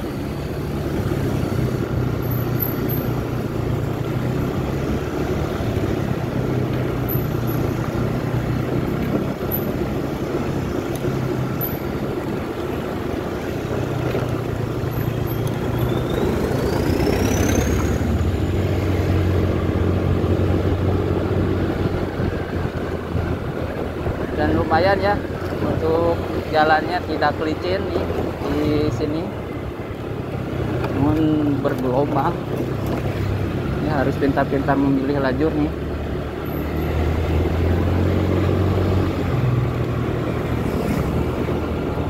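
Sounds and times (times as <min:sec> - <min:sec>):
scooter engine running: 0:00.0 - 0:24.4
wind and road noise: 0:00.0 - 0:42.0.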